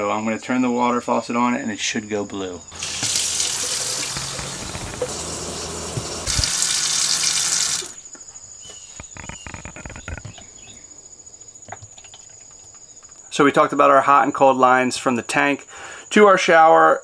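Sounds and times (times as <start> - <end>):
water running from faucet into sink: 2.8 - 8.0.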